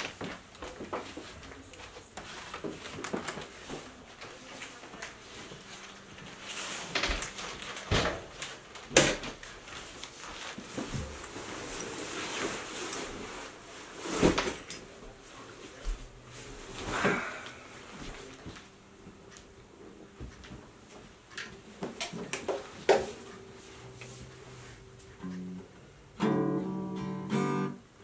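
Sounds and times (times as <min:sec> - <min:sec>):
jacket rustling: 0:09.6 - 0:14.7.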